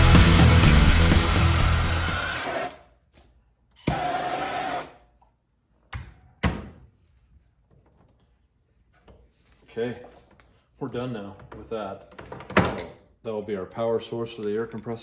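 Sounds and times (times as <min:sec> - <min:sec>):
background music: 0:00.0 - 0:02.7.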